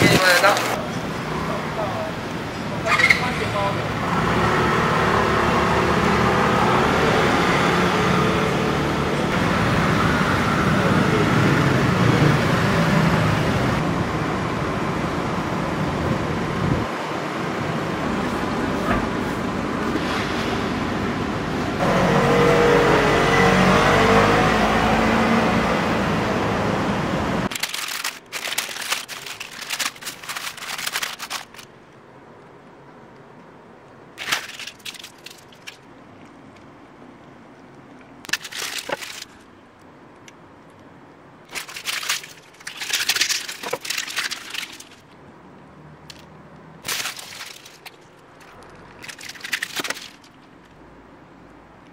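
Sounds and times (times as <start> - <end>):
paper wrappers crinkling: 0.0 - 0.8, 27.5 - 31.8, 34.2 - 36.4, 38.3 - 39.5, 41.5 - 45.2, 46.8 - 50.8
street traffic noise: 0.0 - 51.9.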